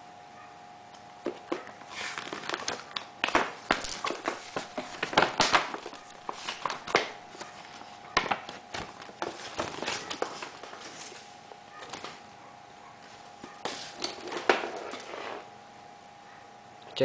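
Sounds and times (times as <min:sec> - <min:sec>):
paper rustling and crinkling: 0:01.6 - 0:12.2.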